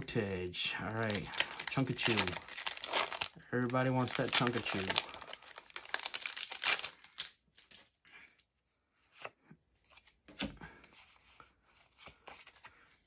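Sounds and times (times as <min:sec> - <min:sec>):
foil wrapper tearing and crinkling: 0:00.9 - 0:07.8
cards rustling and clicking: 0:00.9 - 0:07.9.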